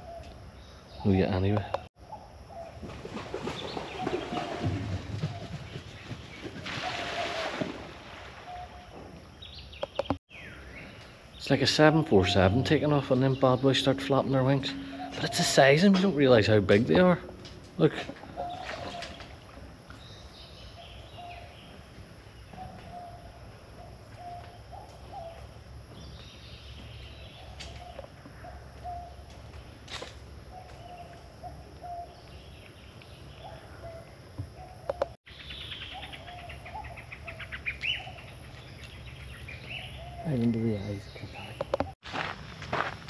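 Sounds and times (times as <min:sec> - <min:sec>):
outdoor background hum: 0:00.0 - 0:43.0
bird high chirps: 0:09.6 - 0:17.4
rapid ticking bird trill: 0:11.4 - 0:19.4
bird low repeated call: 0:11.8 - 0:19.5.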